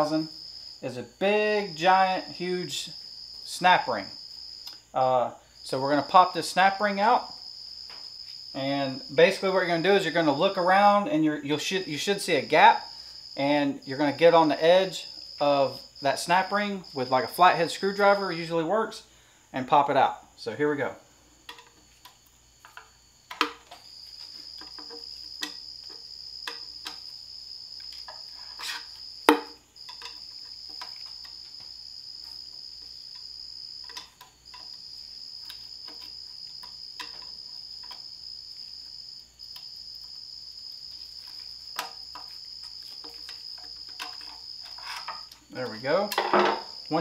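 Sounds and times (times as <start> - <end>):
sharp metal knock: 29.3 - 29.6.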